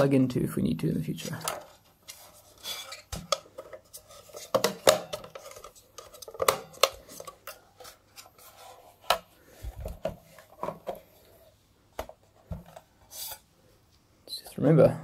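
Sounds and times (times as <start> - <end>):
hands handling plastic case: 1.2 - 13.4.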